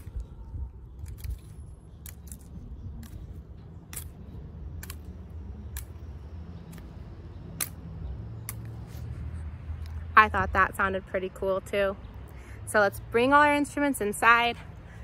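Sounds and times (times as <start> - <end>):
low street noise rumble: 0.0 - 15.0
stick clicking on pine cone: 0.9 - 8.9.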